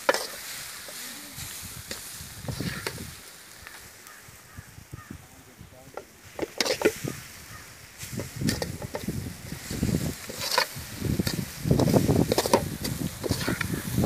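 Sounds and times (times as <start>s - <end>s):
metal ladle scraping cooking pot: 6.4s - 7.0s, 10.2s - 13.7s.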